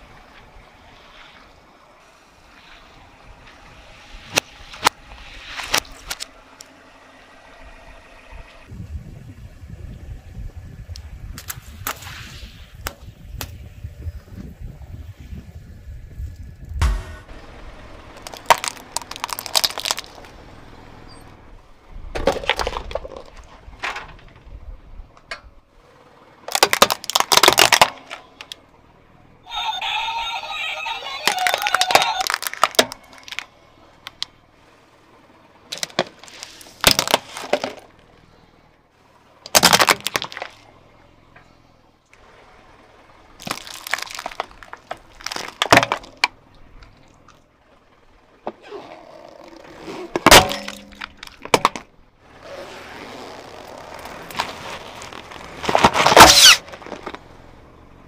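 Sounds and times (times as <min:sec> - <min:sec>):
plastic cracking under tyre: 0:05.6 - 0:06.7, 0:18.2 - 0:20.4, 0:22.1 - 0:24.5, 0:26.4 - 0:28.6, 0:31.2 - 0:34.4, 0:35.7 - 0:38.1, 0:39.4 - 0:40.7, 0:43.4 - 0:47.4, 0:48.4 - 0:57.4.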